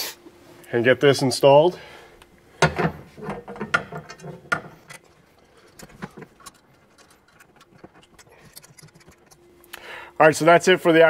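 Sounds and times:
metal bracket and bolts clicking: 0:02.6 - 0:09.4.

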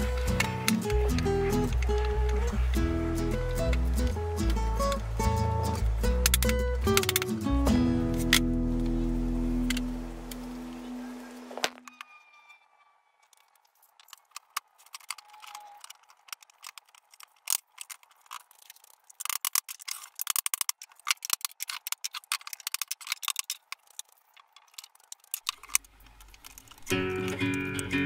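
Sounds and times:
music: 0:00.0 - 0:13.3, 0:26.9 - 0:28.0
wooden boards clicking and knocking: 0:06.2 - 0:07.5.

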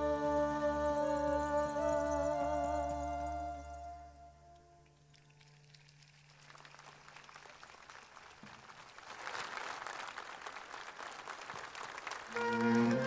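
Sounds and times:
flute playing: 0:00.0 - 0:05.0, 0:12.3 - 0:13.0
audience applauding: 0:05.5 - 0:13.0.

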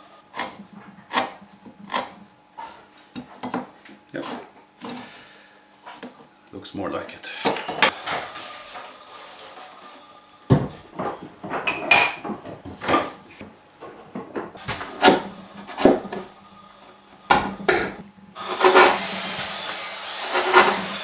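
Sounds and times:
chisel paring wood: 0:00.3 - 0:02.2, 0:14.8 - 0:16.3, 0:17.3 - 0:19.0.

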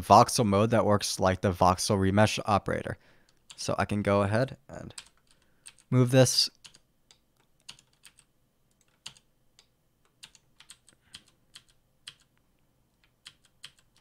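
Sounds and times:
computer keys clicking: 0:04.9 - 0:05.9, 0:06.6 - 0:14.0.

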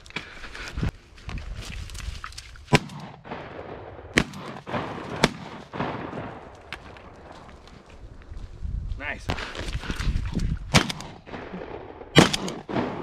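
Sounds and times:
shotgun shots: 0:02.7 - 0:06.5, 0:10.7 - 0:13.0.

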